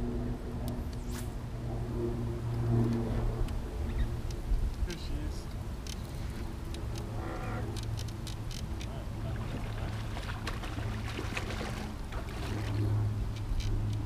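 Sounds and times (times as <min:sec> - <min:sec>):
boat motor humming: 0:00.0 - 0:14.0
fish splashing in water: 0:09.2 - 0:13.1.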